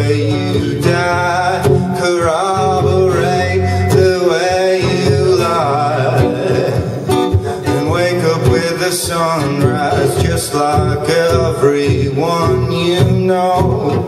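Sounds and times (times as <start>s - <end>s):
acoustic guitar strumming: 0.0s - 14.0s
man singing: 0.0s - 14.0s.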